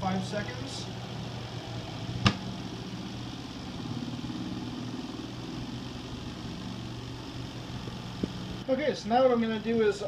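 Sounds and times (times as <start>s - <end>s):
spin-dryer motor humming: 0.0s - 10.0s
sharp click: 2.2s - 2.4s.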